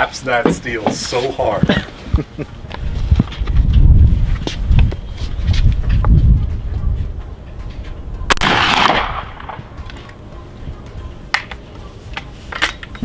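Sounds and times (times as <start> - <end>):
rifle shot echoing: 8.3 - 9.7.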